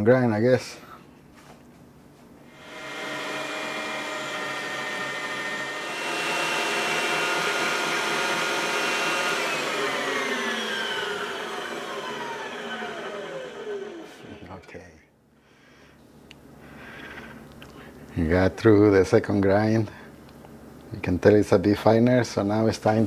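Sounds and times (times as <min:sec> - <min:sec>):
electric meat grinder motor whine: 0:02.5 - 0:14.6.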